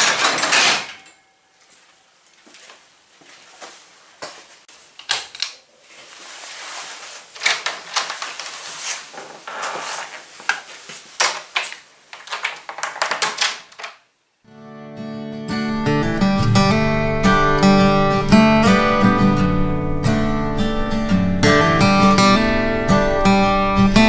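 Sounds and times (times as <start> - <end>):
door being worked: 0.0 - 1.2
clattering knocks and rattles: 0.0 - 1.3, 11.2 - 14.0
acoustic guitar music: 14.5 - 24.0.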